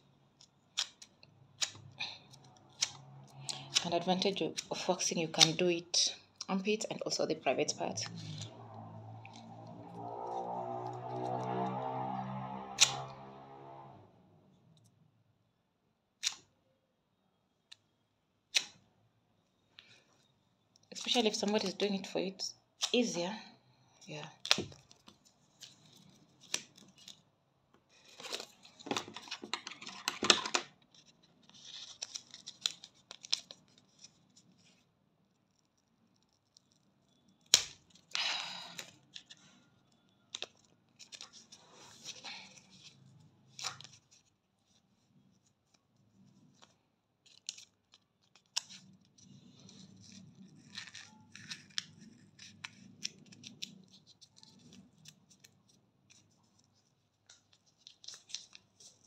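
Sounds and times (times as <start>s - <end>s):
plastic strips crinkling and peeling: 28.0s - 44.8s, 46.4s - 59.0s.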